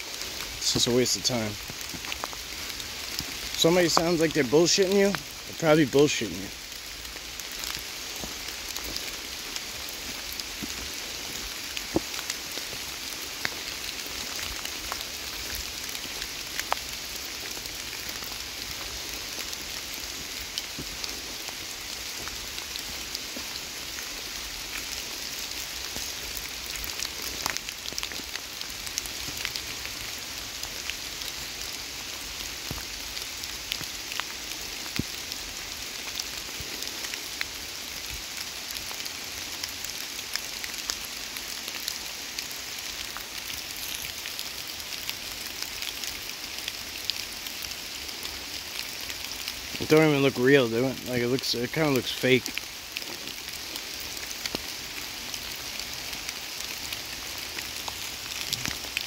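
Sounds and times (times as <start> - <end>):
raindrops ticking close by: 0.0 - 59.0
steady rain falling: 0.0 - 59.0.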